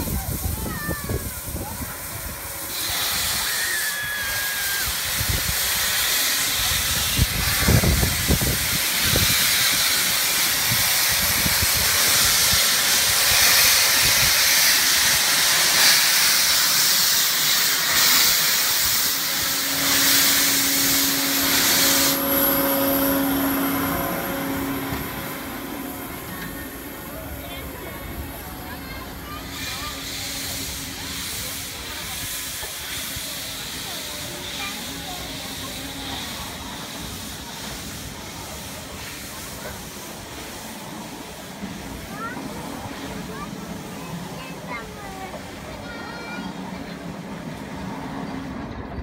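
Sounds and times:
steam hissing from locomotive: 0.0s - 49.0s.

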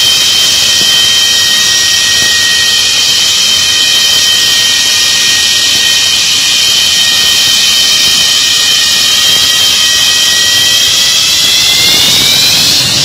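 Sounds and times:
high turbine whine: 0.0s - 13.0s
jet engine roar: 0.0s - 13.0s.

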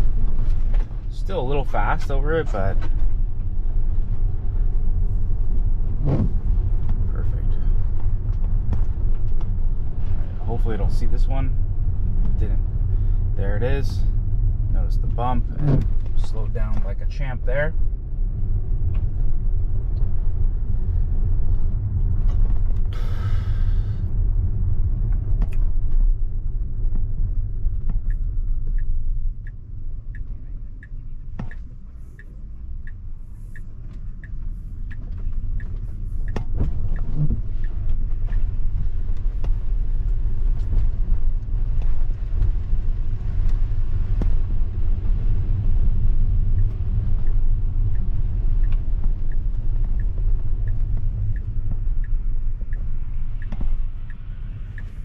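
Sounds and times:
road and tyre rumble: 0.0s - 55.0s
turn signal ticking: 18.5s - 55.0s.

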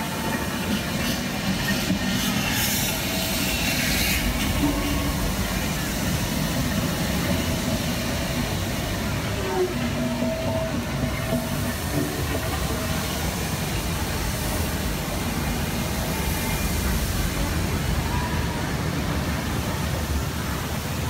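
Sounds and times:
faint voices of passers-by: 0.0s - 21.0s.

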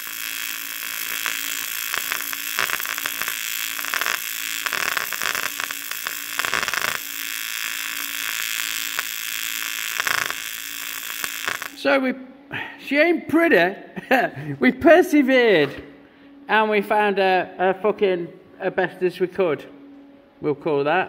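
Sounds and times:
welding arc hissing and crackling: 0.0s - 11.8s.

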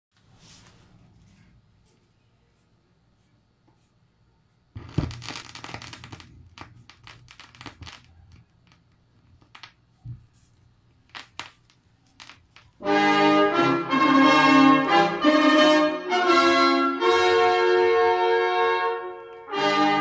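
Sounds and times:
vinyl crackles and pops: 4.7s - 12.8s.

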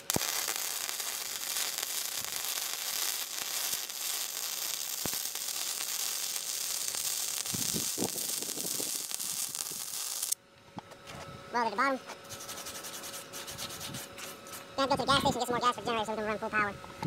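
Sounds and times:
welding arc crackling and sizzling: 0.0s - 10.4s.

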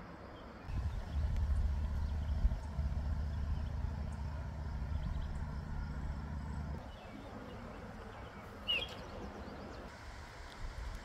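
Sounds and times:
faint outdoor background: 0.0s - 11.0s
low engine rumble: 0.7s - 8.2s.

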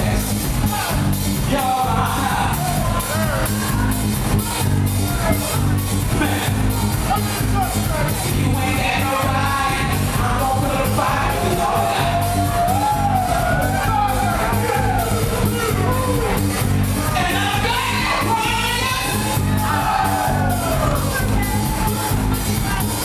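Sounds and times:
bass-heavy house beat: 0.0s - 23.0s
man singing into a microphone: 8.3s - 12.1s.

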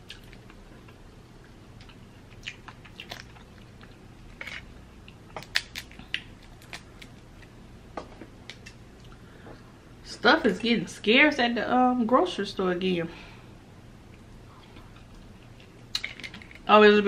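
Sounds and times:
chewing: 0.0s - 7.1s.

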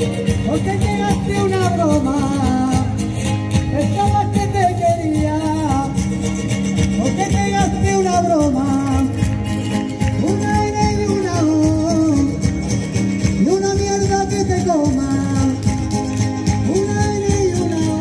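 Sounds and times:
person singing: 0.0s - 3.0s, 10.1s - 12.5s, 13.3s - 18.0s
strummed guitars: 0.0s - 18.0s.

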